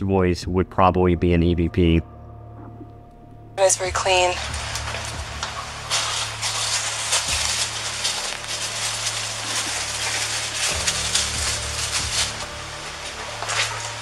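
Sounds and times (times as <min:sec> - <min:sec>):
steady low hum: 0:00.0 - 0:14.0
clothing rustling against microphone: 0:04.6 - 0:14.0.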